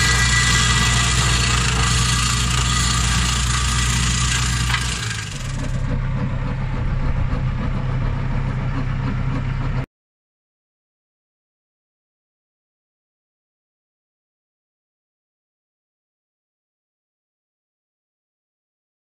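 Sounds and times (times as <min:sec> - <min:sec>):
flail mower shredding grass: 0:00.0 - 0:06.2
tractor engine running: 0:00.0 - 0:09.9.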